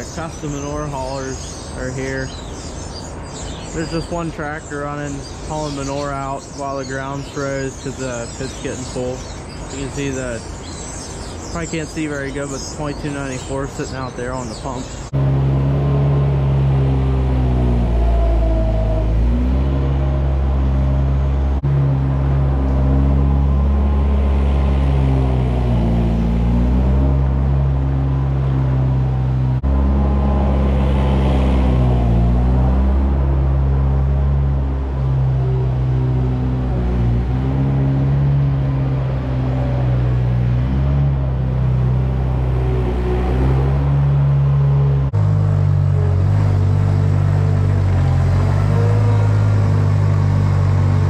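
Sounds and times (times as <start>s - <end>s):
loader engine running: 15.0s - 51.0s.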